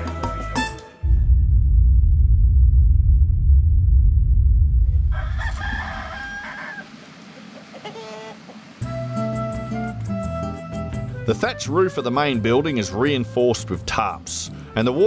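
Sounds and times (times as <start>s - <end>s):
loud deep rumble: 1.0s - 5.9s
rooster crowing: 5.1s - 8.7s.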